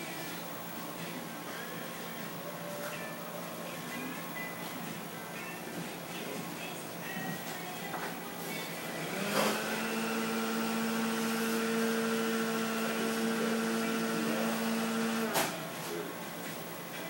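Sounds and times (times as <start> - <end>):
hair clippers humming: 8.8 - 15.5.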